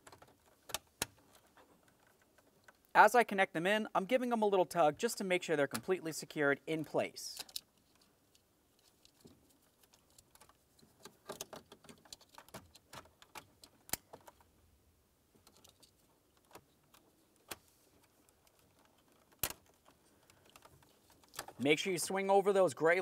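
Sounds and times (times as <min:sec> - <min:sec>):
plastic connectors clicking: 0:15.4 - 0:21.6.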